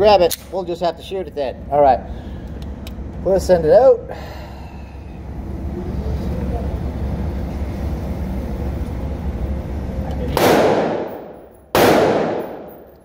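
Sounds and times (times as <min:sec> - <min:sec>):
pistol shots: 0:10.4 - 0:13.0.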